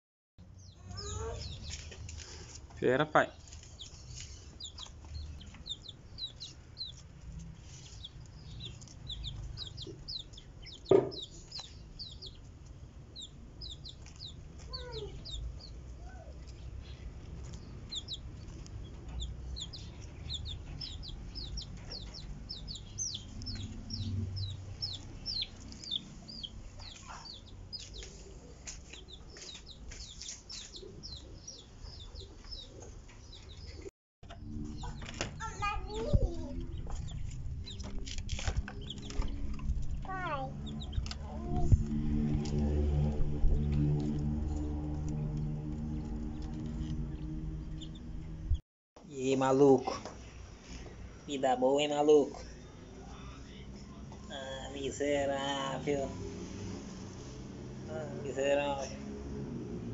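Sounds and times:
quails chirping: 0.6 - 2.6, 3.3 - 41.8, 45.1 - 48.2.

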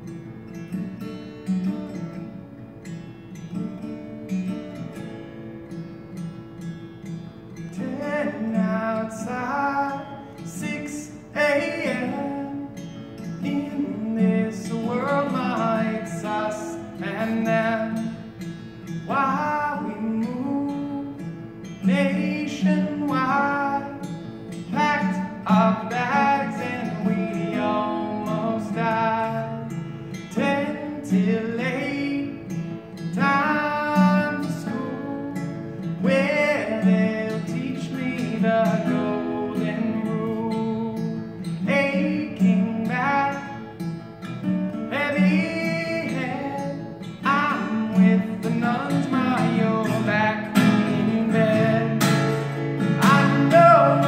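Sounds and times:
strummed acoustic guitar: 0.0 - 54.0
person singing: 7.7 - 12.8, 19.1 - 21.2, 24.7 - 29.7, 33.1 - 41.0, 44.9 - 54.0.

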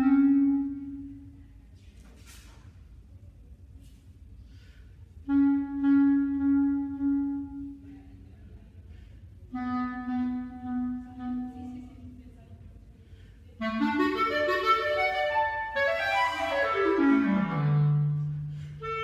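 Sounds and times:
clarinet long notes: 0.0 - 1.4, 5.2 - 8.2, 9.5 - 12.3, 13.6 - 19.0.

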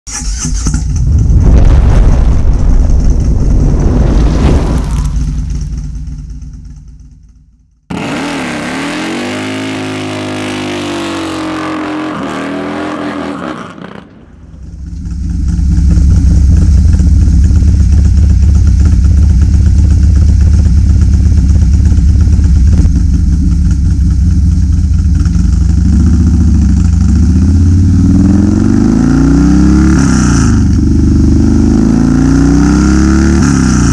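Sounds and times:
motorcycle engine running on a dyno: 5.2 - 11.8, 14.5 - 33.9.

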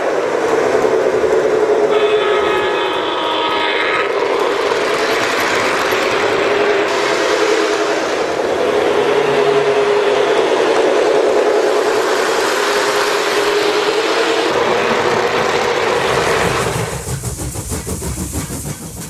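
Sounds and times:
model train cars clicking: 0.0 - 7.8, 14.5 - 19.0.

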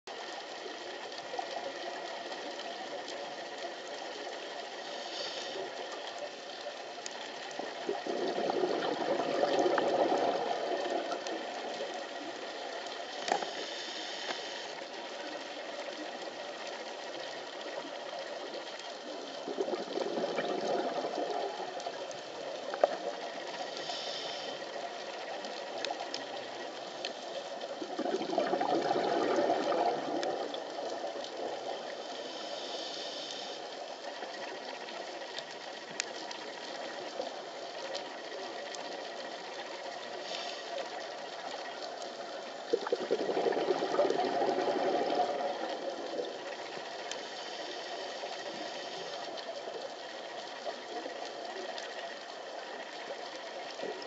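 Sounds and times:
steady underwater hiss: 0.1 - 54.0
regulator inhalation hiss: 4.8 - 5.9, 13.0 - 15.4, 23.6 - 25.0, 32.0 - 34.0, 40.1 - 41.2, 46.8 - 49.3
bubbling exhaled air: 7.8 - 11.8, 19.4 - 21.8, 27.8 - 31.7, 42.6 - 46.7.

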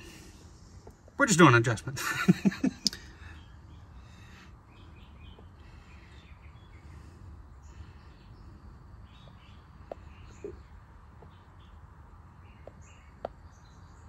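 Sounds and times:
faint background noise: 0.0 - 14.0
faint high chirps: 2.6 - 11.8.

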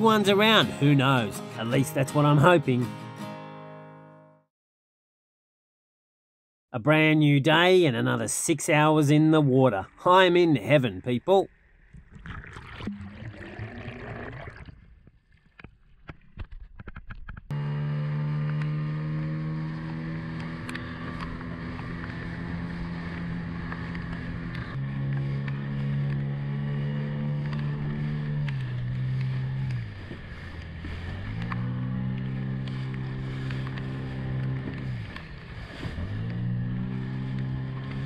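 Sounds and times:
outboard motor running: 17.5 - 38.0.

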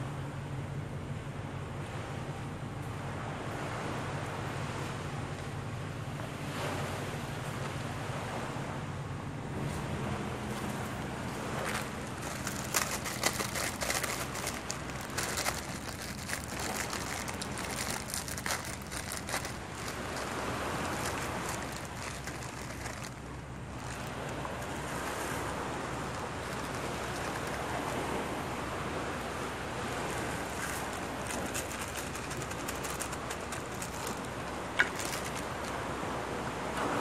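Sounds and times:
small surf waves: 1.4 - 37.0
plastic packet crinkling: 11.6 - 27.7, 30.4 - 35.7.

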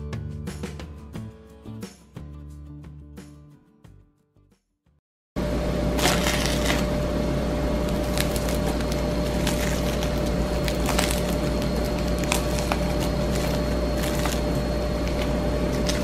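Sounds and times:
electrical hum and hiss: 5.4 - 16.0.

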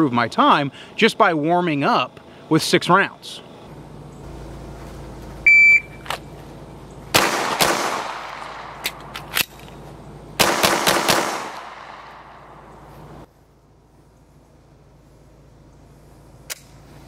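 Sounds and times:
shot timer beep: 5.5 - 6.0
handgun shots ringing out: 7.2 - 9.6, 10.4 - 12.2
magazine reload clicks: 8.4 - 9.8.

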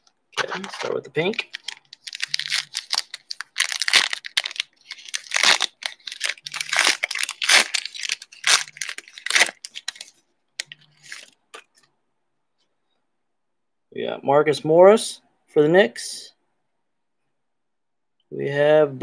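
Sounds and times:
foil wrapper tearing and crinkling: 0.4 - 11.4.

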